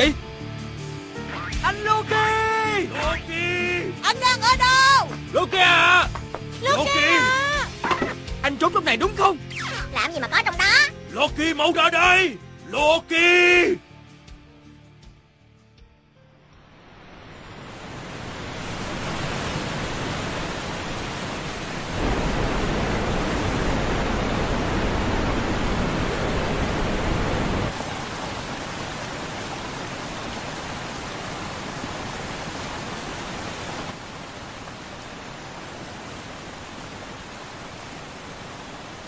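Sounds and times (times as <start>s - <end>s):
waterfall pouring: 17.4s - 39.0s.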